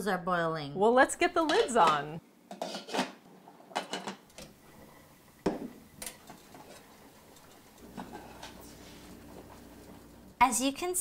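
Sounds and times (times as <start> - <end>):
glass lids clinking on pots: 1.5 - 4.6.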